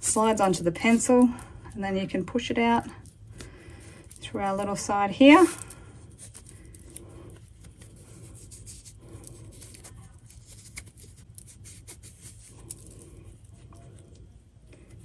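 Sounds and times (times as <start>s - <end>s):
fabric rustling and scratching: 4.0s - 14.0s.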